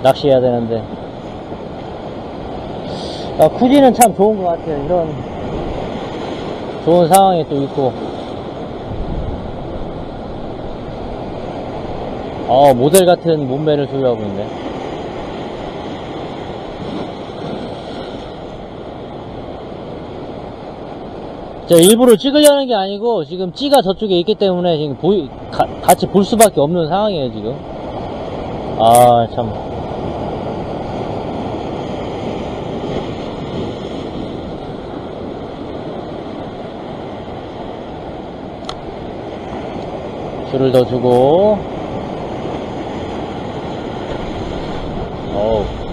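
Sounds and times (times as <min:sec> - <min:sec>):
surf washing over rocks: 0:00.0 - 0:45.9
wind on microphone: 0:07.9 - 0:12.5, 0:41.3 - 0:45.9
wind noise on microphone: 0:08.0 - 0:12.5.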